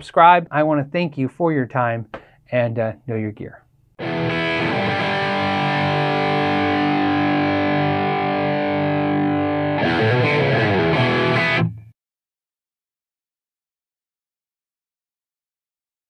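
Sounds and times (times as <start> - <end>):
distorted electric guitar chords: 4.0 - 11.9.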